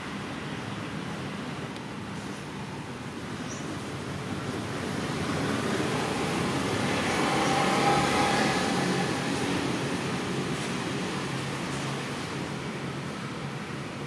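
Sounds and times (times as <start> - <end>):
vehicle passing by: 4.2 - 12.7.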